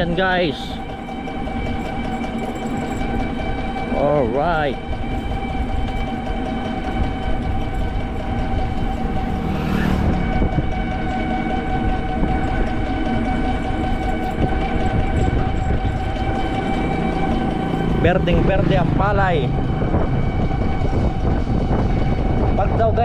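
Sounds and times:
road rumble: 4.6s - 22.6s
wind noise on microphone: 4.8s - 23.0s
electric motor whining: 6.9s - 11.3s.

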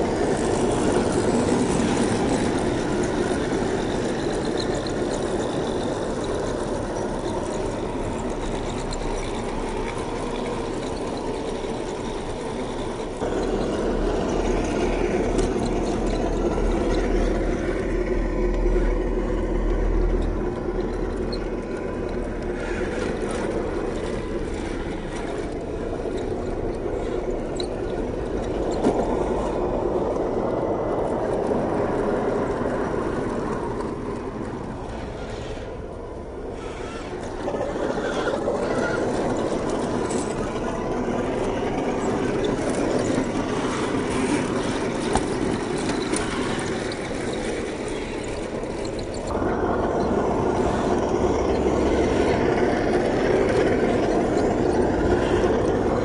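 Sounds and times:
toy truck electric motor running: 36.5s - 56.0s.

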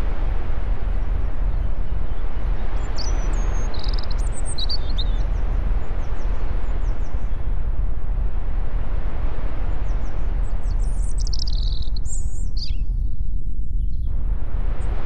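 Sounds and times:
low wind rumble: 0.0s - 15.0s
bird chirping: 2.8s - 5.2s, 10.0s - 12.9s.

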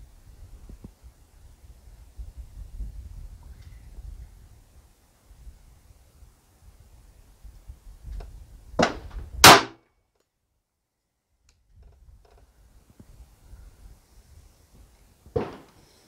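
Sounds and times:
pistol shot: 8.8s - 9.8s.

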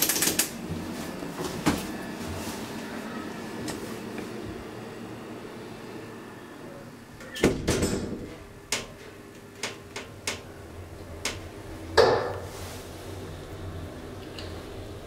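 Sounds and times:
elevator door thump: 7.3s - 8.4s
elevator door knocks clattering: 7.3s - 9.0s.

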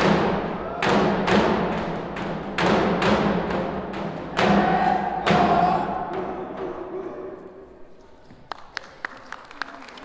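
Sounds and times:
hard drum hits: 0.0s - 6.6s.

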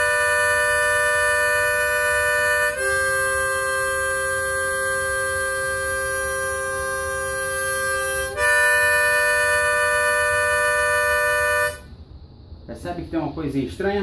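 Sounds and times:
harmonica chord: 0.0s - 12.0s.

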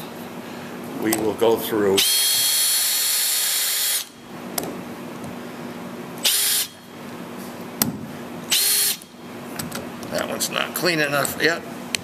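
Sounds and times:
electric drill whining: 2.0s - 4.2s, 6.2s - 6.8s, 8.5s - 9.1s.

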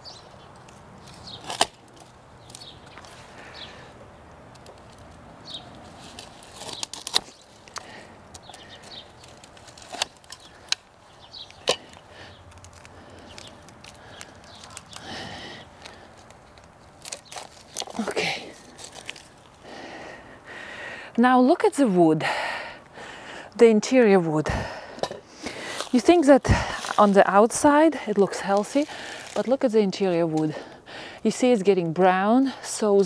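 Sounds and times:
rustle of branches: 0.0s - 19.9s, 25.3s - 30.5s
loppers cutting woody canes: 0.6s - 3.0s.

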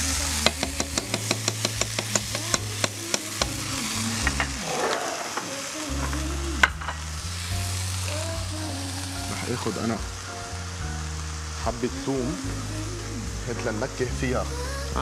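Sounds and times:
butter frying sizzle: 0.0s - 15.0s
spoon tapping frying pan: 0.4s - 3.6s.

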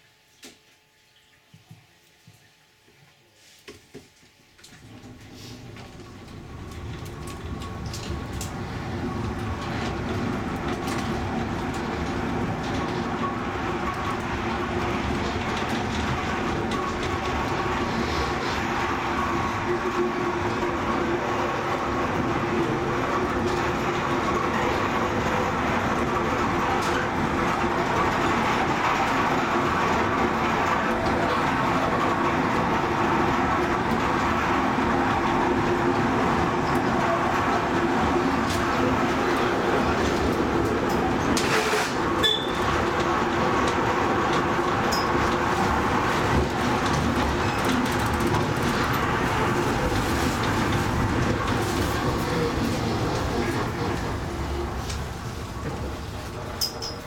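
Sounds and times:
wheels rumbling on rail: 4.8s - 57.0s
high squeak: 41.4s - 42.7s.

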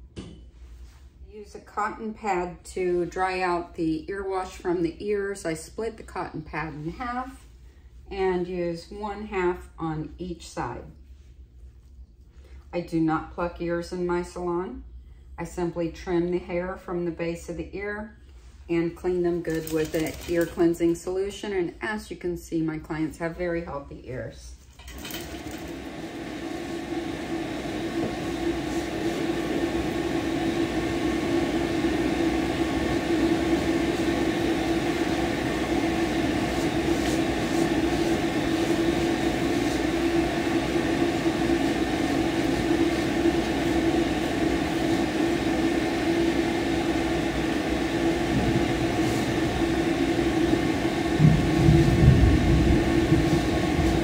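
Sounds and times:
blow dryer blowing air: 24.9s - 54.0s.

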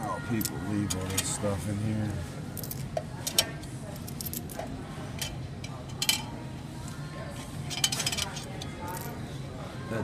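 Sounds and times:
coins clinking in metal tray: 7.7s - 9.2s.

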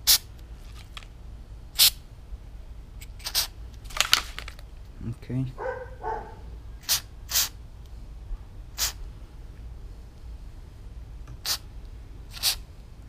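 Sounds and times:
aerosol can spraying: 3.1s - 3.5s, 6.8s - 7.5s, 8.8s - 9.0s, 11.4s - 11.6s, 12.3s - 12.6s.

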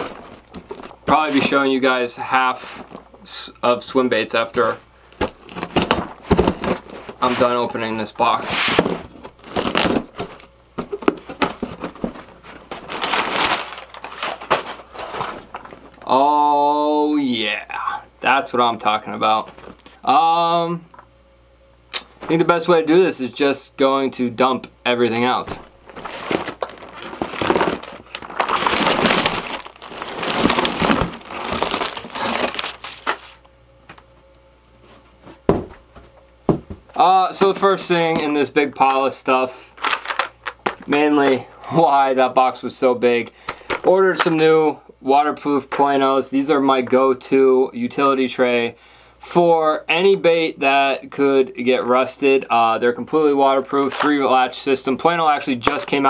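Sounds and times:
cardboard flaps rustling: 0.0s - 1.7s, 4.4s - 16.1s, 25.2s - 33.4s.

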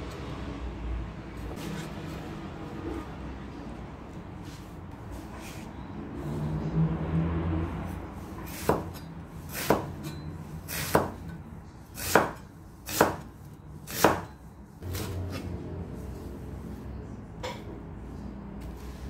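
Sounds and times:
knife chopping onion on board: 8.5s - 11.3s, 11.9s - 15.6s.

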